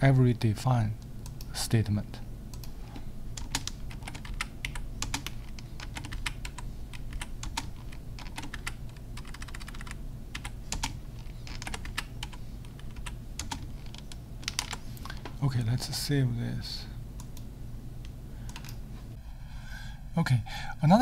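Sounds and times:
keyboard typing: 0:03.4 - 0:15.2, 0:18.5 - 0:18.8.

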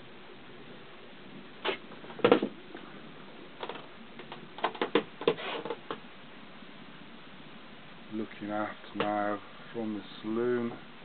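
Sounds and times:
knocks and clatters: 0:02.0 - 0:02.6, 0:03.6 - 0:06.0.

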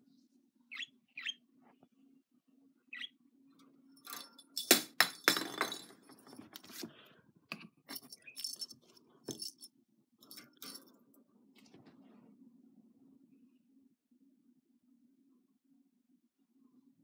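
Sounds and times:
budgie chirp: 0:00.7 - 0:01.4, 0:02.9 - 0:03.1.

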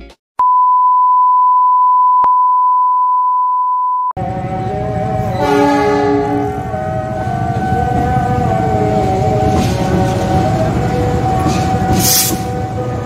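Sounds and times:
railway-side noise: 0:04.2 - 0:13.0
horn-like tones: 0:05.3 - 0:06.7.

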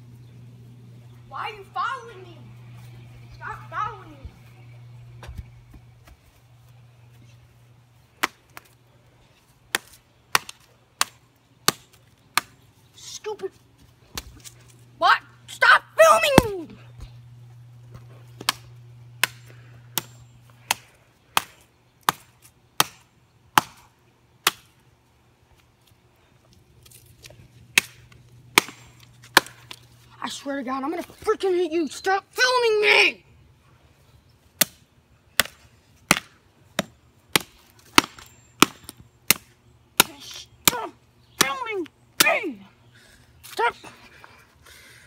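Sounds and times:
hatchet strikes: 0:19.2 - 0:20.8, 0:21.4 - 0:23.8, 0:27.8 - 0:29.8, 0:35.4 - 0:40.8.

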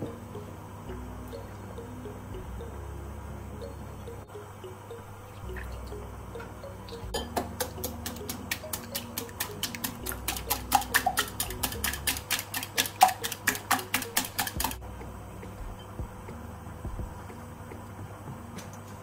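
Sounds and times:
background music: 0:00.0 - 0:19.0
fork beating eggs in glass bowl: 0:07.2 - 0:14.8.

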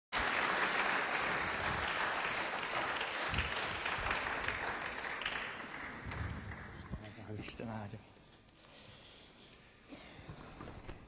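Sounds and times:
congregation applauding: 0:00.1 - 0:07.4.

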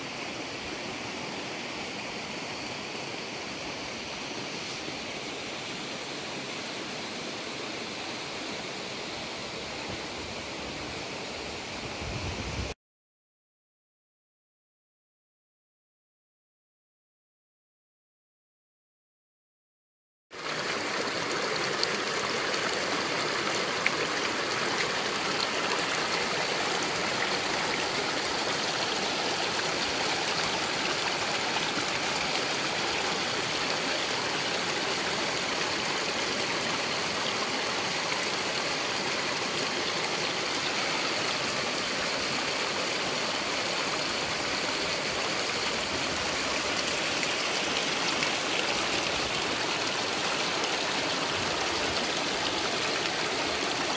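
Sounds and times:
stream splashing over stones: 0:20.4 - 0:53.9.

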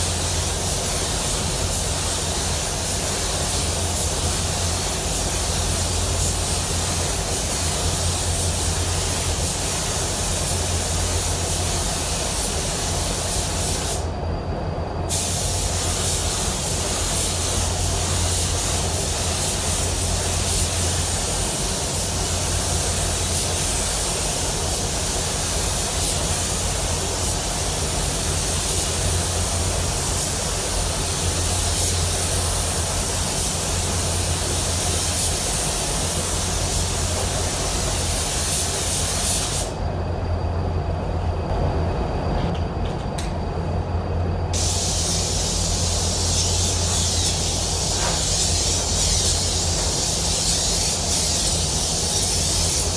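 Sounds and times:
spray gun hissing: 0:00.0 - 0:14.1, 0:15.1 - 0:39.8, 0:44.5 - 0:52.9
steady low hum: 0:00.0 - 0:52.9.

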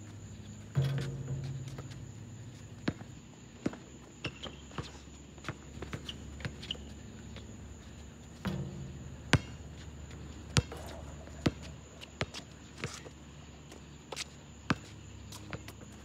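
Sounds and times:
basketball bouncing on asphalt: 0:00.7 - 0:06.8, 0:08.4 - 0:13.0.

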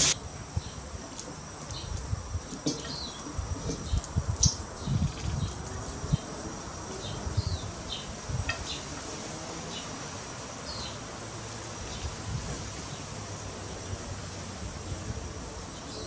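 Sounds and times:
high insect drone: 0:00.0 - 0:16.0.

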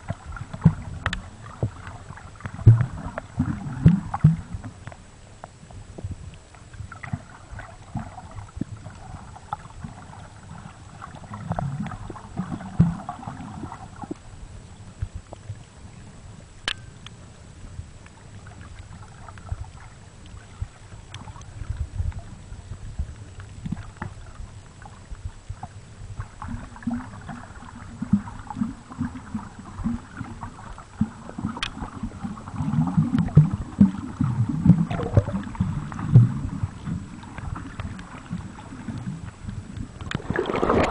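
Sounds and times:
muffled underwater sloshing: 0:00.0 - 0:40.9.

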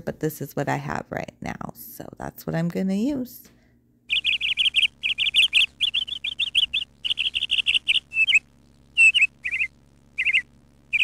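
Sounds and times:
small bird chirping: 0:04.1 - 0:11.0.

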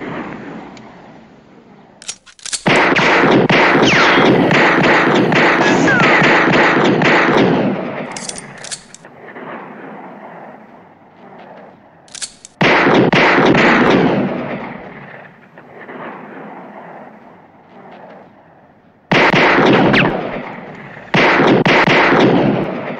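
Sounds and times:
gunshot echo: 0:02.6 - 0:08.6, 0:12.6 - 0:16.6
pistol firing rapid volley: 0:02.6 - 0:08.6, 0:12.6 - 0:15.1, 0:19.1 - 0:22.9.

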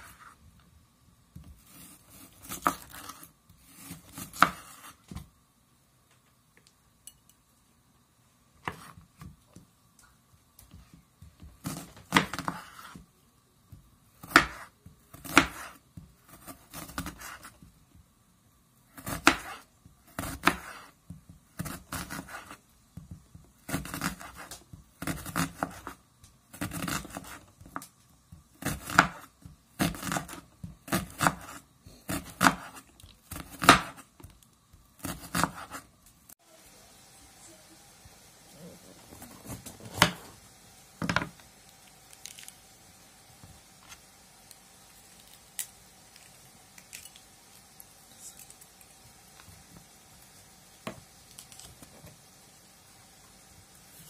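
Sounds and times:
knife slicing onion on board: 0:01.4 - 0:05.3, 0:08.6 - 0:09.4, 0:10.7 - 0:13.1, 0:13.7 - 0:17.6, 0:18.9 - 0:36.0, 0:39.2 - 0:40.4.

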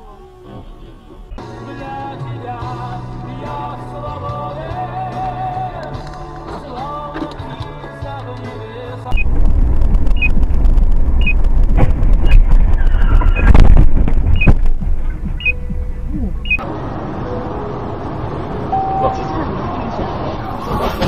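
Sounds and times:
road and engine rumble: 0:00.0 - 0:21.0
short high beep: 0:18.7 - 0:19.3.

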